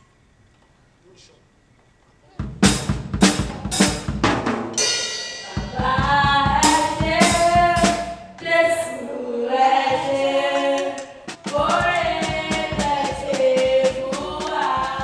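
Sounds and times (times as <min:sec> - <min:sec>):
drum kit playing a beat: 0:02.4 - 0:08.4, 0:11.2 - 0:15.0
voices singing a praise song: 0:05.4 - 0:15.0.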